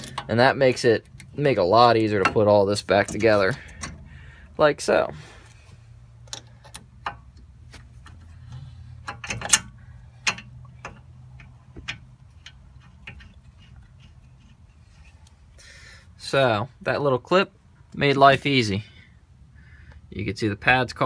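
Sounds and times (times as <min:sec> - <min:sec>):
metallic clicks and clunks: 0:00.0 - 0:04.4, 0:06.2 - 0:15.4.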